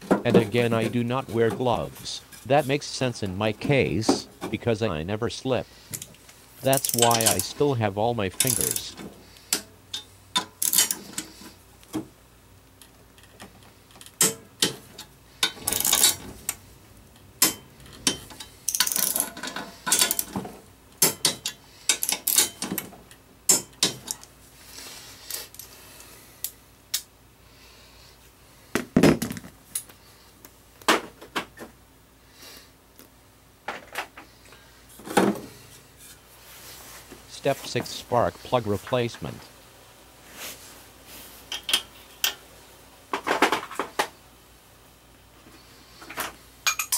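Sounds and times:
metal tools clanking: 6.6 - 7.7, 8.3 - 9.1.

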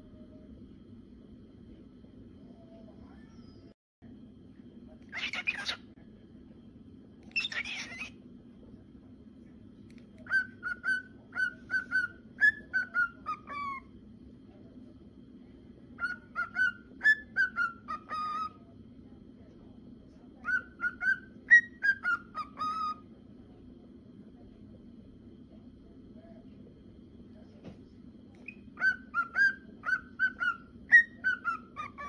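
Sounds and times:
cockatiel whistling: 10.2 - 13.9, 16.0 - 18.6, 20.4 - 23.0, 28.4 - 32.0.

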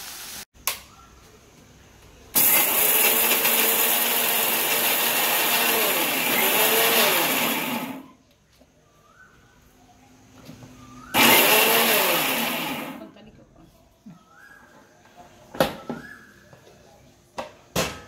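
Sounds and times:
mixer grinder motor grinding: 2.4 - 8.1, 11.1 - 13.1.

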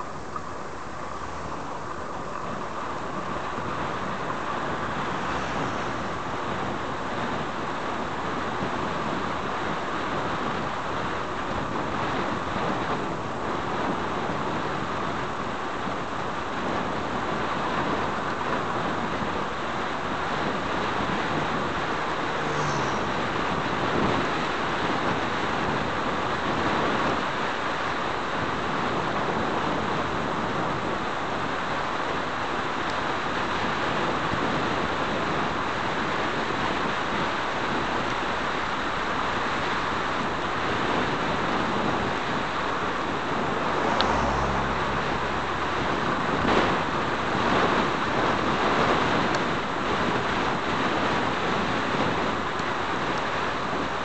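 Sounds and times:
road noise: 0.0 - 54.0
wind rushing over microphone: 0.0 - 54.0
vehicle passing: 4.4 - 7.7, 21.3 - 24.6, 43.1 - 48.1.

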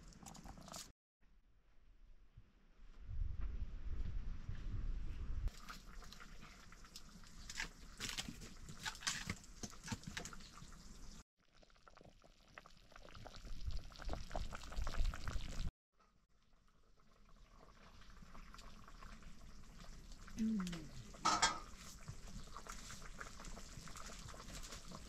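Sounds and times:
curry bubbling in a wok: 5.5 - 25.0.

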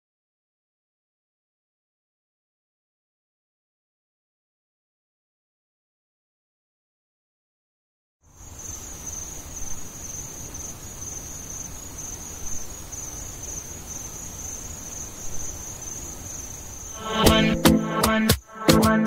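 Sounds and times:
crickets chirping: 8.2 - 19.0.

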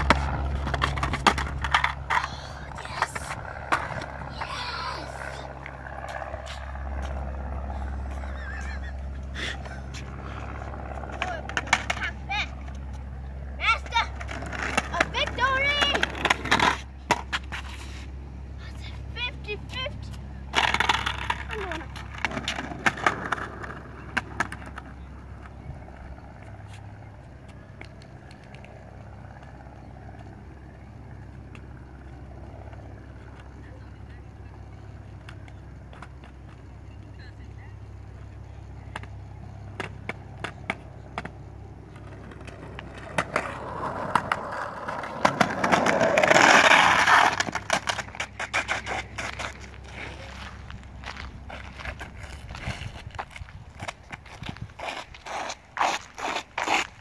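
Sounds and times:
sharp skateboard clacks: 0.0 - 4.2, 11.1 - 12.2, 13.8 - 17.8, 20.5 - 25.5, 38.9 - 49.8, 51.8 - 57.0
skateboard rolling on concrete: 0.0 - 57.0.

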